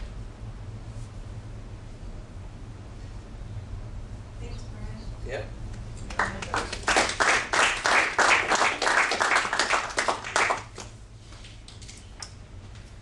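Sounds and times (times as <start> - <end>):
group applauding: 6.0 - 11.0.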